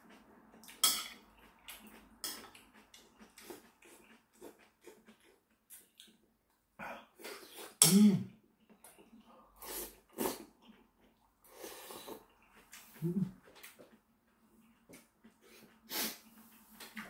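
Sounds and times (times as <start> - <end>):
person slurping noodles: 9.6 - 10.5, 11.5 - 13.3, 15.5 - 16.4
person humming: 13.0 - 13.4.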